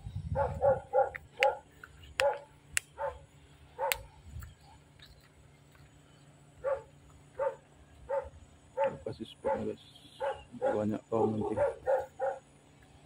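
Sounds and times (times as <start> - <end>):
dog barking: 0.3 - 4.1, 6.6 - 12.5.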